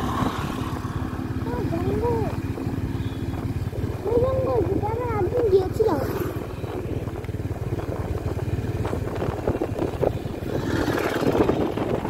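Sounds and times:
motorbike engine rumble: 0.0 - 12.0.

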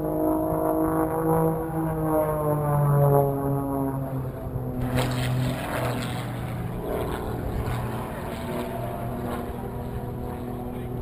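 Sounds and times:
propeller plane droning overhead: 0.0 - 11.0.

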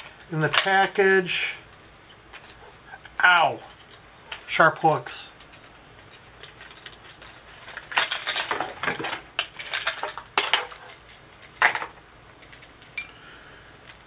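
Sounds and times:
metal hooks clinking and rattling: 1.6 - 2.7, 3.6 - 4.5, 5.4 - 14.0.

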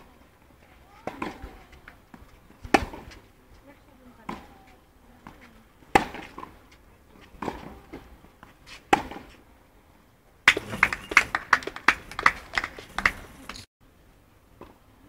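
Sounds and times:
tennis ball struck by rackets: 1.0 - 3.2, 4.2 - 6.6, 7.3 - 9.4, 10.4 - 11.3
spectators clapping: 10.5 - 13.7.

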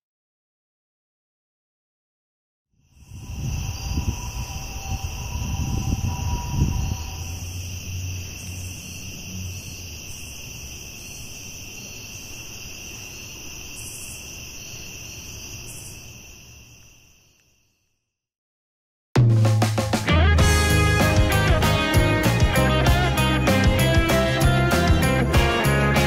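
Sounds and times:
insects trilling: 2.8 - 17.9
low rumble: 3.2 - 8.6.

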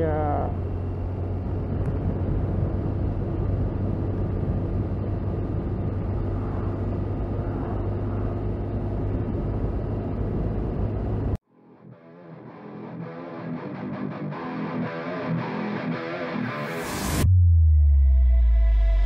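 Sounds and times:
motorcycle engine hum: 0.0 - 11.4
wind and road noise: 0.0 - 11.4.

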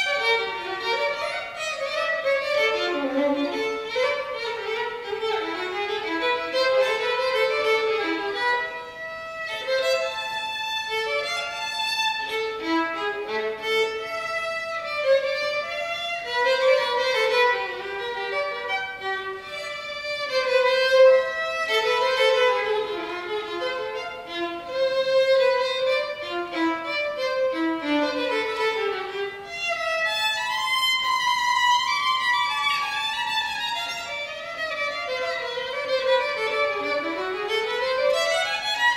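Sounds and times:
violin melody: 0.0 - 38.9.

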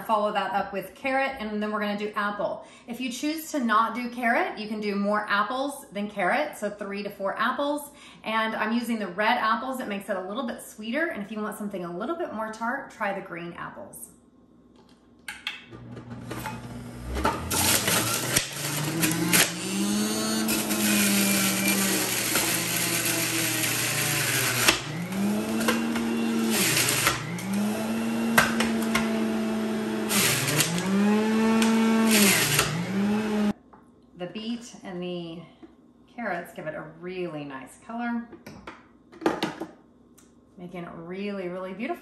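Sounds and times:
juicer motor running: 15.7 - 33.5
grinding of produce shredding: 15.8 - 33.5.

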